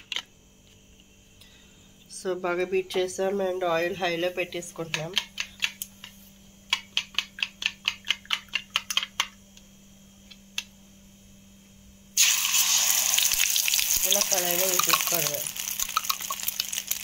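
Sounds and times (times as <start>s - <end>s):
egg beaten in a bowl: 4.6s - 9.3s
egg sizzling in hot oil: 12.2s - 17.0s.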